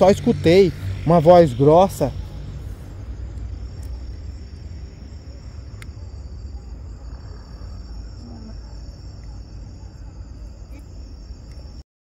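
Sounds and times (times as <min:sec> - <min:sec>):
low steady rumble: 0:00.0 - 0:11.8
night insects trilling: 0:00.0 - 0:11.8.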